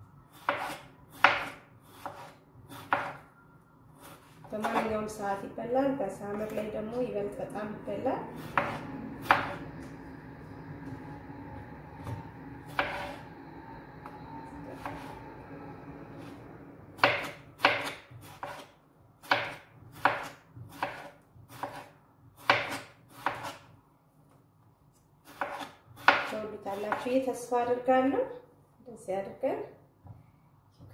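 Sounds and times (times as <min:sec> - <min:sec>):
knife slicing on a cutting board: 0:00.3 - 0:03.2, 0:12.7 - 0:13.2, 0:17.0 - 0:23.7, 0:25.2 - 0:26.3.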